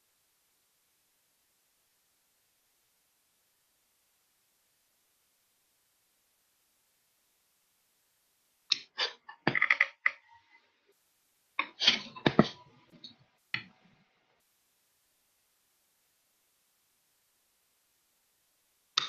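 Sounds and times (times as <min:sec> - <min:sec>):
clicks and knocks: 0:08.7 - 0:10.3.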